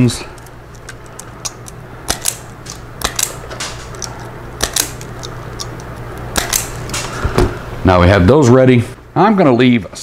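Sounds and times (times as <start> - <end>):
wire stripping tool clicking: 0.4 - 7.1.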